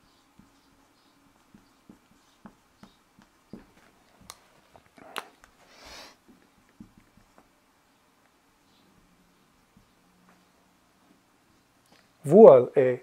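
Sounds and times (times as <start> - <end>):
marker writing on whiteboard: 0.0 - 5.6, 6.2 - 7.5.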